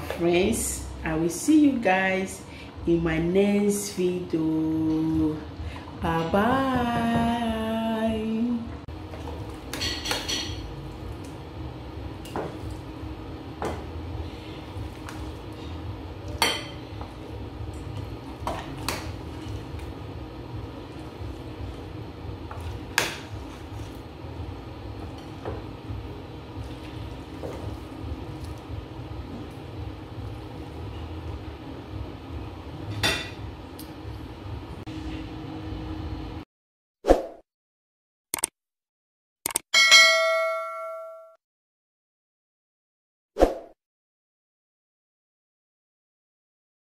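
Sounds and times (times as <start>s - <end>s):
steady low hum: 0.0s - 36.4s.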